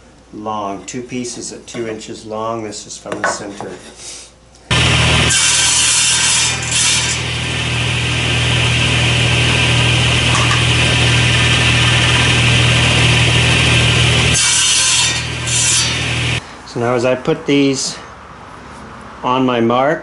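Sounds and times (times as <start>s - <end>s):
table saw cutting wood: 4.7s - 16.4s.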